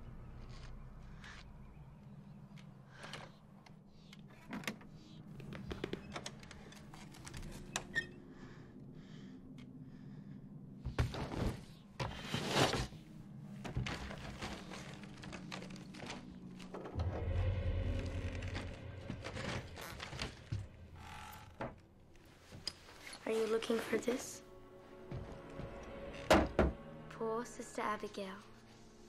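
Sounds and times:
low drone: 13.2s - 22.3s.

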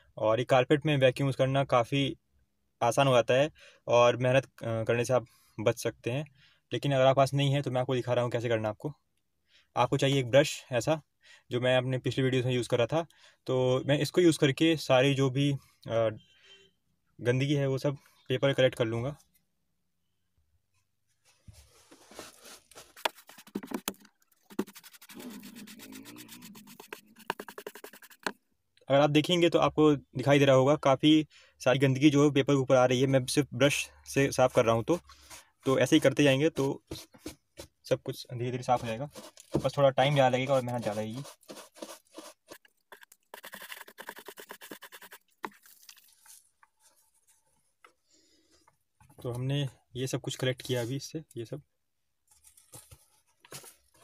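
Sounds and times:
paper rustling: 21.3s - 28.3s, 38.8s - 44.1s, 52.3s - 54.0s
brush scrubbing carpet: 24.5s - 28.3s, 38.7s - 45.2s.

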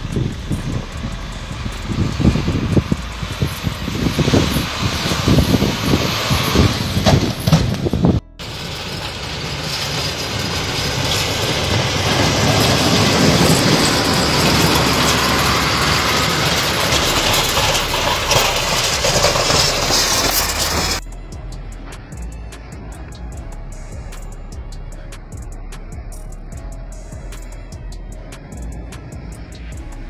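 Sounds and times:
tyres rushing through snow: 0.0s - 21.0s
truck engine running: 0.0s - 30.0s.

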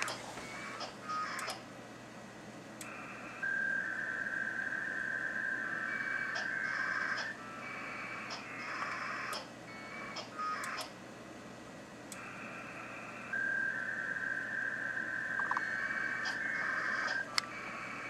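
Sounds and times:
sharp clicks: 10.2s - 11.0s
steady radio tone: 12.2s - 18.0s.

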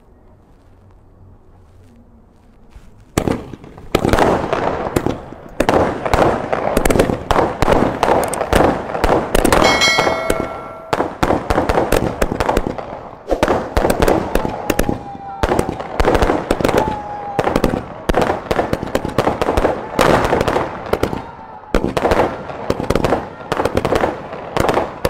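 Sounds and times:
firework crack: 2.7s - 25.0s
steady ringing tone: 9.6s - 11.2s.

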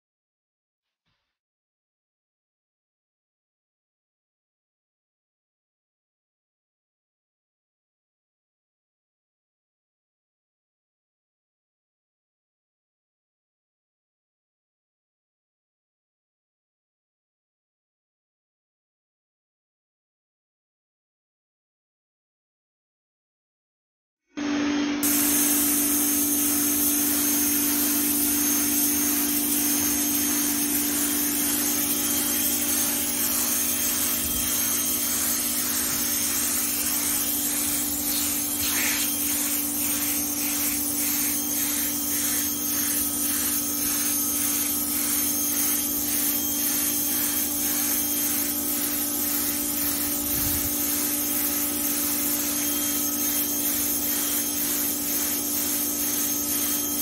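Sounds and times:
pressure washer droning: 24.4s - 57.0s
water jet hissing: 25.0s - 56.8s.

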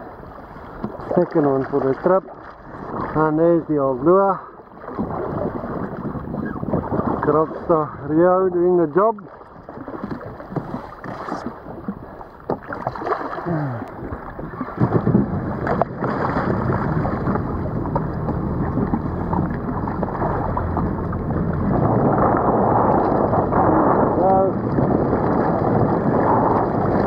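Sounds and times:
water splashing against jet ski: 0.0s - 27.0s
wind on microphone: 0.0s - 27.0s
fish thrashing in water: 9.6s - 27.0s.

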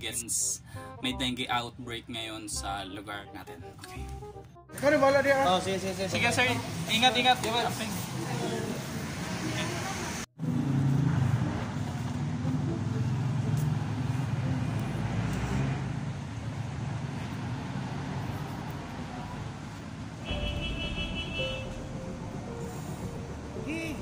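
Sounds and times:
deeper rumble: 20.2s - 24.0s.

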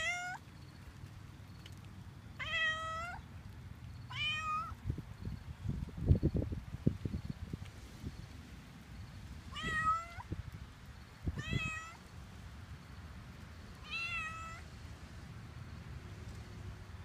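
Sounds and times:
cat meowing: 0.0s - 0.4s, 2.4s - 3.2s, 4.1s - 4.8s, 9.6s - 10.3s, 11.4s - 12.0s, 13.8s - 14.6s.

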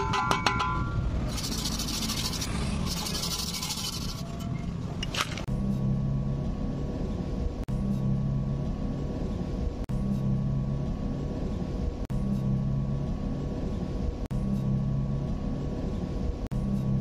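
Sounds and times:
low steady drone: 5.5s - 17.0s.

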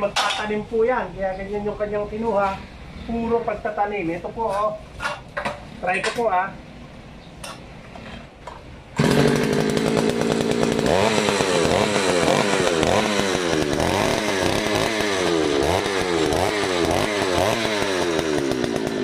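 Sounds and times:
two-stroke engine revving: 9.0s - 19.0s.

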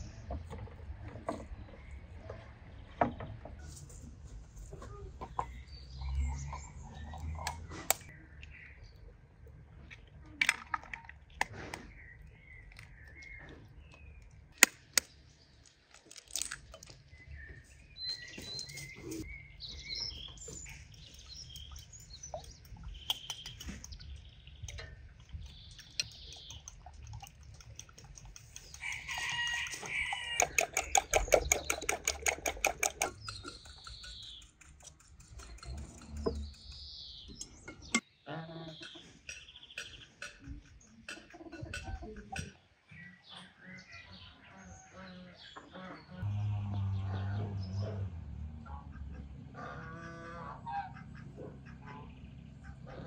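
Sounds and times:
chickens clucking: 0.0s - 8.2s, 18.0s - 38.0s, 38.6s - 46.2s, 47.0s - 53.0s
birds chirping: 0.0s - 53.0s
fast even clicking: 20.9s - 37.6s.

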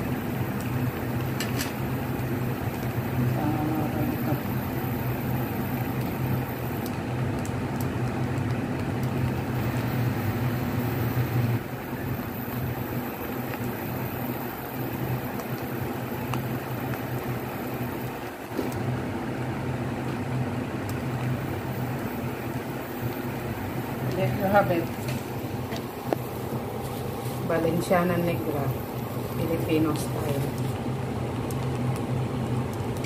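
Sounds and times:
kitchen fan humming: 0.0s - 33.0s.

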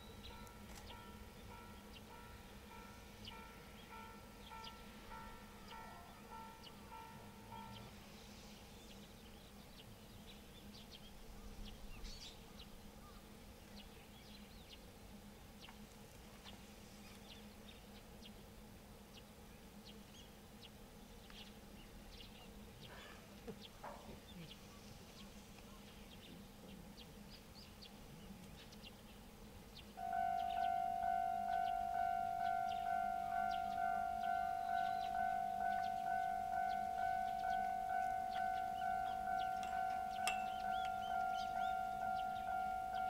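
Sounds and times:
small birds chirping: 0.0s - 43.0s
steady low hum: 24.4s - 43.0s.

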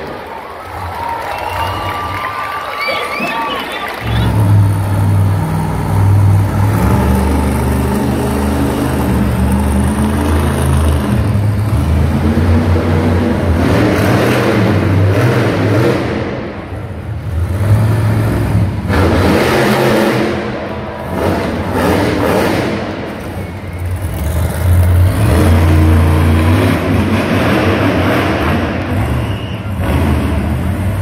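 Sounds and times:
truck engine revving loudly: 3.2s - 31.0s.

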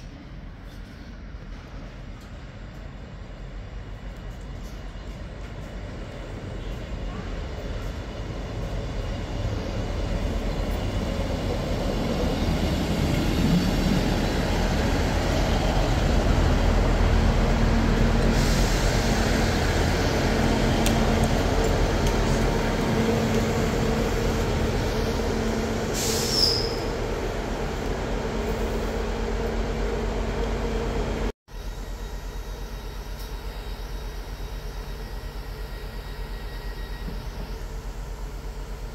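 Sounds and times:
diesel train engine and wheels: 0.0s - 38.9s
air brake hiss: 18.3s - 19.4s, 25.9s - 26.8s
high brake squeal: 26.0s - 27.0s, 31.9s - 37.8s.

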